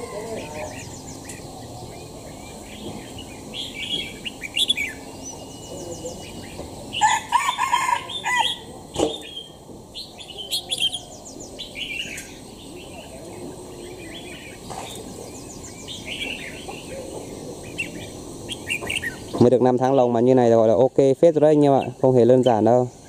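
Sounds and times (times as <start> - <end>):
rooster crowing: 0.0 - 1.0, 7.0 - 8.7
songbird singing with high trills: 0.0 - 23.0.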